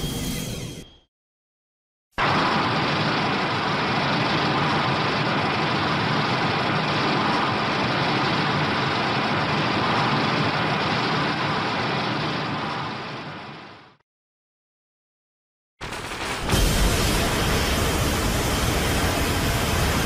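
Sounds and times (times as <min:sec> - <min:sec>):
loud rushing noise: 0:15.8 - 0:20.0.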